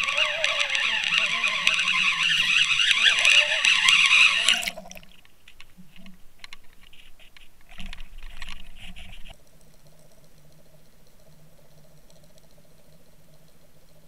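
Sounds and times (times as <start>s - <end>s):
water splashing: 0.0s - 6.0s
water rushing over camera: 0.0s - 6.2s.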